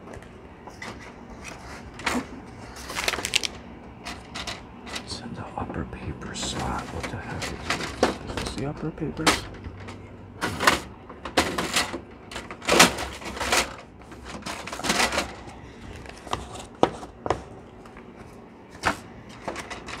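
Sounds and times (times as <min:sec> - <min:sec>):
plastic rattles: 0:02.9 - 0:03.6.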